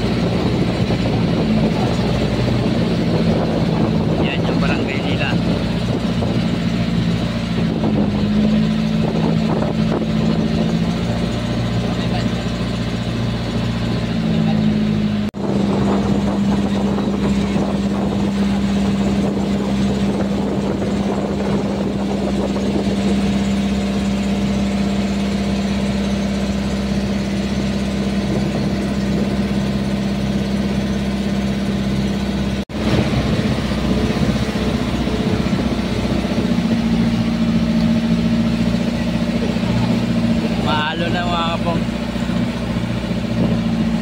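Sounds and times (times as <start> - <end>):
boat engine droning: 0.0 - 44.0
water rushing and splashing: 0.0 - 44.0.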